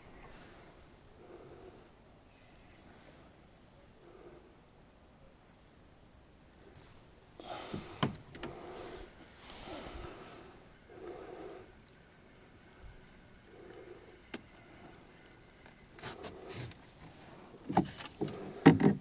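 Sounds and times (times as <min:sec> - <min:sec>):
faint mechanical clicking: 0:00.0 - 0:19.0
fishing reel winding: 0:00.8 - 0:01.4, 0:02.0 - 0:07.1, 0:10.7 - 0:16.1.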